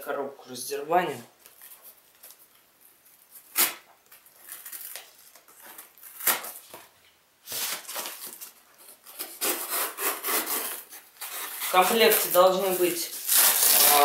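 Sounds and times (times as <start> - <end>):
bubble wrap crinkling: 1.4 - 14.0
foam box rubbing and creaking: 9.2 - 14.0.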